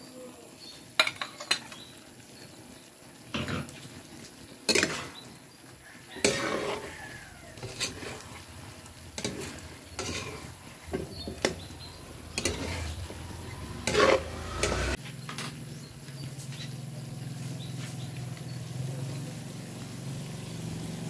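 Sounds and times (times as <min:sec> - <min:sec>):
food sizzling: 0:00.0 - 0:21.0
metal spatula scraping wok: 0:04.7 - 0:05.3, 0:06.0 - 0:15.6.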